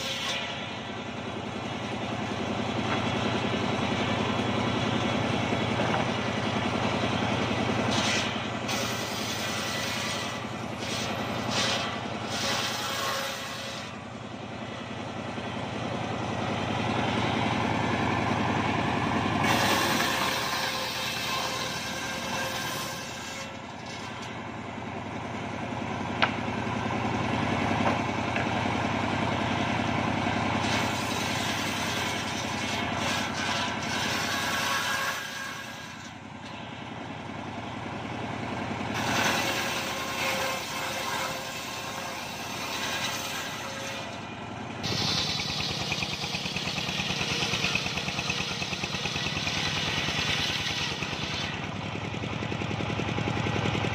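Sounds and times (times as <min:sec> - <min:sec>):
circular saw blade whine: 0:00.0 - 0:53.9
engine hum: 0:00.2 - 0:12.7, 0:13.6 - 0:22.4, 0:23.1 - 0:34.5, 0:35.8 - 0:40.2, 0:44.1 - 0:53.9.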